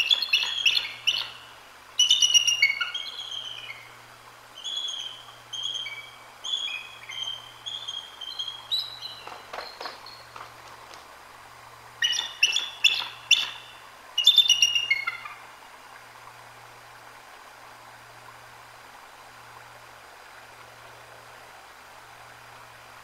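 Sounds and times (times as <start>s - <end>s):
eagle calling: 0.0s - 3.9s, 4.6s - 10.4s, 12.0s - 15.4s.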